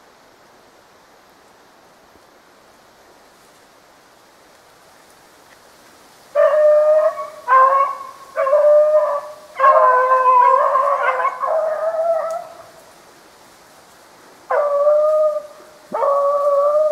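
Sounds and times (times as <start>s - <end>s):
dog howling: 6.4s - 12.7s, 14.5s - 16.9s.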